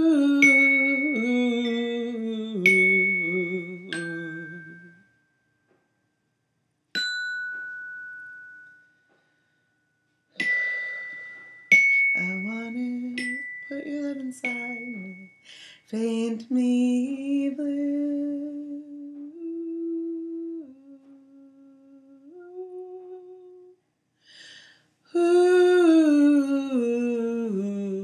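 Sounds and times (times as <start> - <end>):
person humming a melody: 0.0 - 5.0, 12.2 - 15.3, 15.9 - 23.8, 25.1 - 28.0
bell-like chime notes: 7.0 - 15.5.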